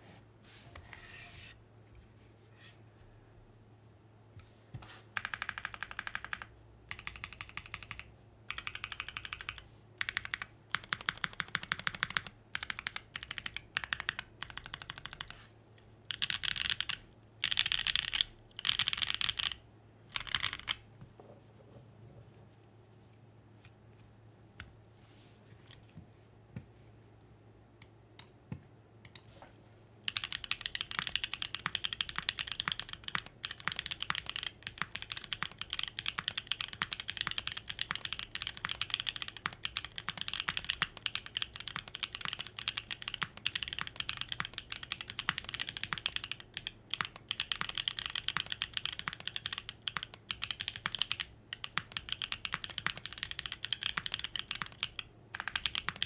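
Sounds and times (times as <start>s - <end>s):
mechanical keyboard typing: 5.2s - 15.4s, 16.1s - 20.8s, 30.1s - 56.0s.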